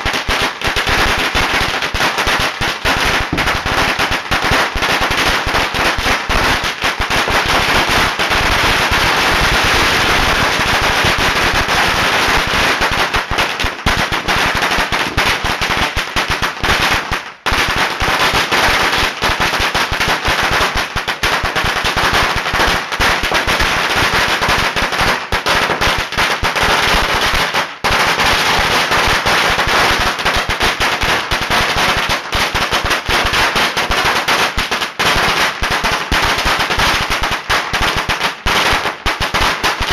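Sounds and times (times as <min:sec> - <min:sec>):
firecrackers crackling: 0:00.0 - 0:39.9.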